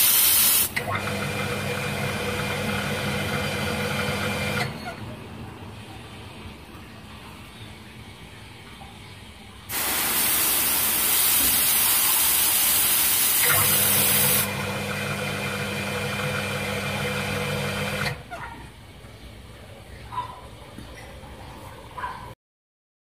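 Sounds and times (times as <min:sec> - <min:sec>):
water spraying from hose nozzle: 0:00.0 - 0:00.8, 0:09.7 - 0:14.6
motor hum: 0:13.4 - 0:18.2.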